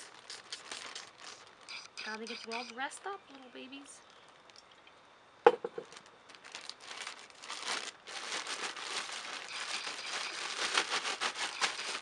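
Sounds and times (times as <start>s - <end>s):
plastic bag crinkling: 0.0s - 1.9s, 5.7s - 12.0s.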